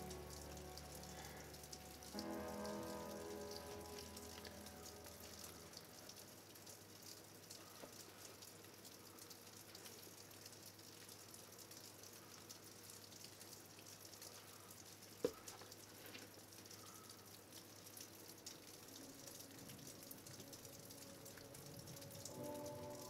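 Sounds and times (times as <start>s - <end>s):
soft music: 0.0s - 8.7s, 18.0s - 23.0s.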